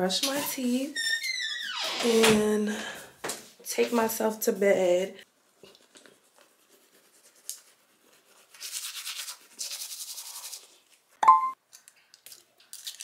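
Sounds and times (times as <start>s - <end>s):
toothbrush scrubbing teeth: 5.6s - 11.0s.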